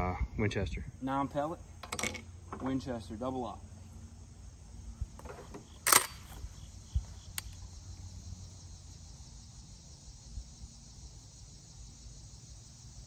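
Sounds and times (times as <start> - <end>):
insect drone: 0.0 - 13.0
small click: 7.3 - 7.6.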